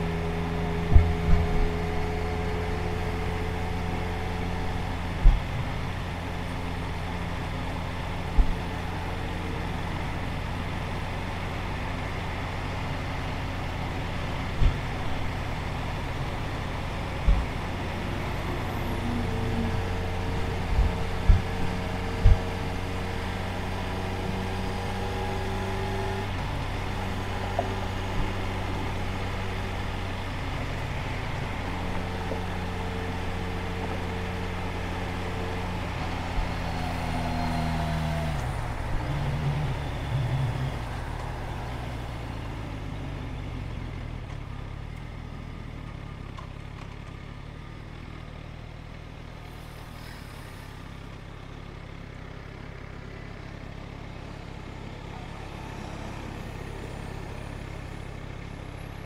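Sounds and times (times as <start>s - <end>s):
low steady rumble: 0.0s - 46.4s
motorcycle engine: 0.0s - 59.0s
road traffic: 0.0s - 59.0s.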